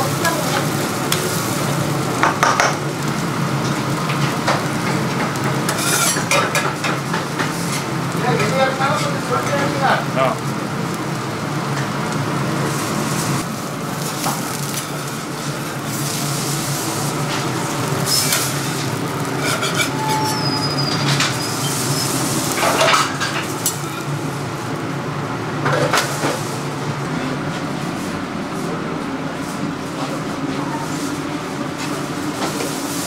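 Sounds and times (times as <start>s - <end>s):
utensils and dishes clattering: 3.6s - 9.7s, 18.0s - 24.1s
low hum: 26.7s - 30.5s.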